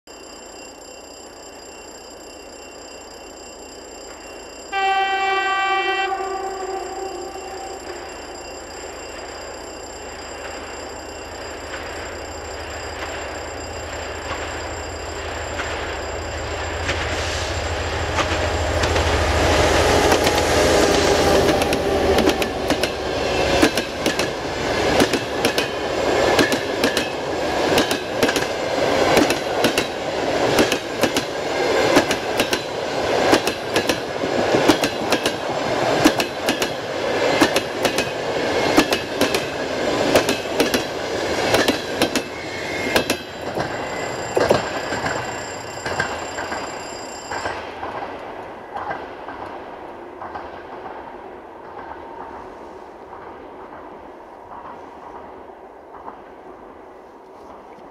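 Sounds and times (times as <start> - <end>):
diesel locomotive engine drone: 2.3 - 57.2
train wheels clickety-clack: 15.4 - 56.7.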